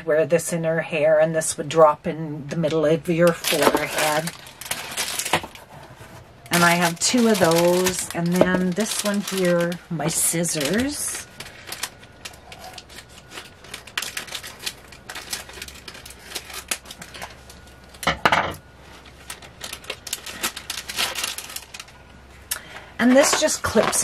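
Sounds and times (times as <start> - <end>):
plastic packaging crinkling: 3.1 - 18.1, 18.7 - 24.0
scissors cutting packaging: 3.2 - 5.6, 6.5 - 17.4, 19.3 - 21.9.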